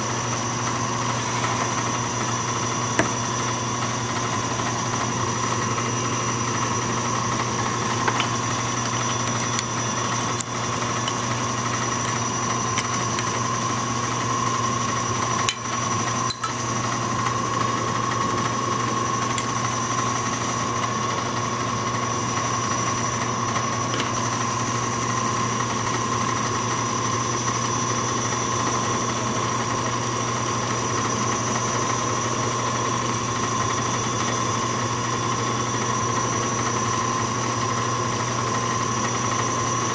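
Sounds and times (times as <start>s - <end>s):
metal lathe motor humming and whining: 0.0s - 39.9s.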